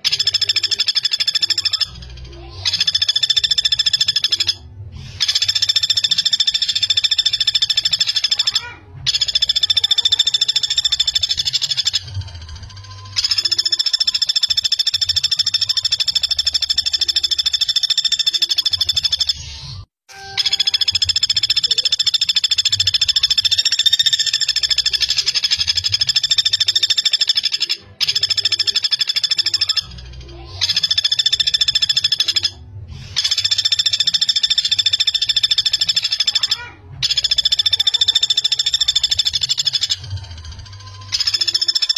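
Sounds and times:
woodpecker rattling trill: 0.0 - 19.6, 20.2 - 41.9.

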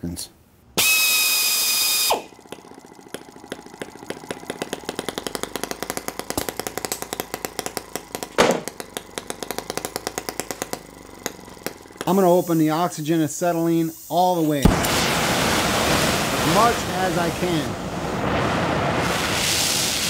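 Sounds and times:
small engine running in pops: 0.8 - 13.1, 14.6 - 17.7
whirring hiss: 0.8 - 20.0.

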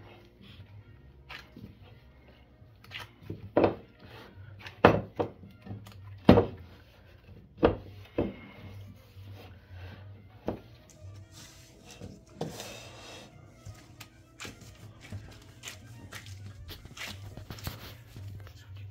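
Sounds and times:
dough rubbing: 6.5 - 18.9.

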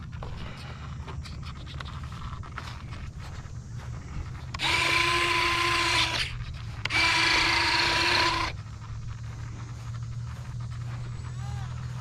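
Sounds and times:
small electric motor whirring: 4.4 - 8.7.

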